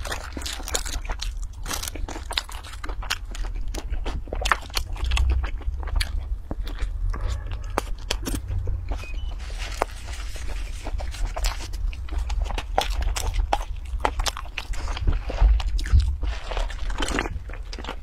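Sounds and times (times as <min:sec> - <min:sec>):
crunching bites of fried chicken: 0:00.0 - 0:07.0
chewing: 0:00.0 - 0:18.0.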